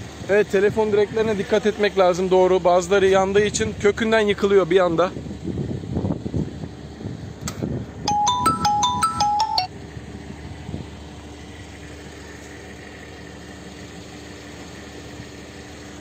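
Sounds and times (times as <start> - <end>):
phone ringtone jingle: 8.1 - 9.7
vehicle engine idling: 9.8 - 16.0.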